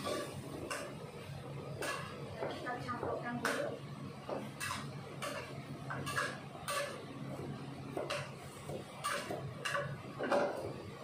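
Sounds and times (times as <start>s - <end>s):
spatula scraping a wok: 0.0s - 1.0s, 1.7s - 2.4s, 4.4s - 10.8s.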